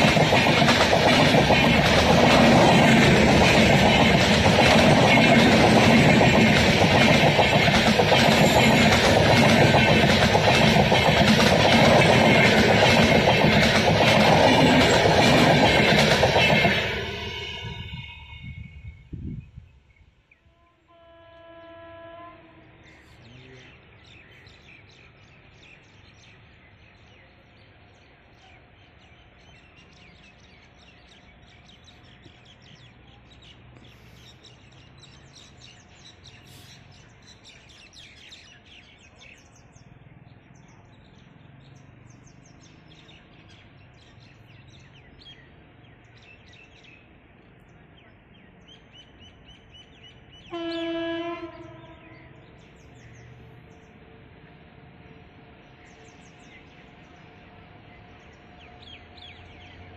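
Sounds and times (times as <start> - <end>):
train horn: 20.4 - 23.7, 50.4 - 52.5.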